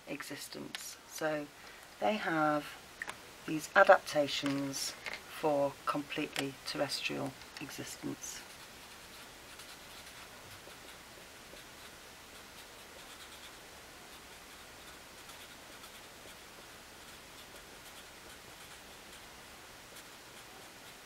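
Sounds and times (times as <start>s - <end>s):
low hiss: 0.0s - 21.0s
marker pen scratching on paper: 7.6s - 19.3s, 19.9s - 21.0s.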